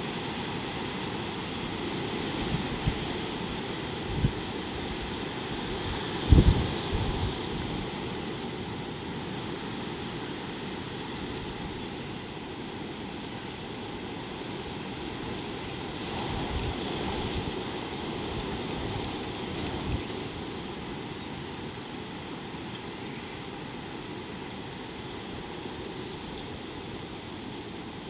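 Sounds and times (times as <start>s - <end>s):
wind buffeting microphone: 2.4s - 8.0s.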